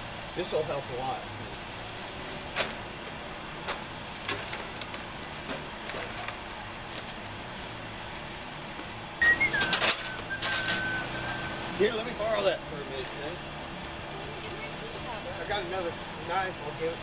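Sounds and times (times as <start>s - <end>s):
short high whistle: 9.2s - 11.6s.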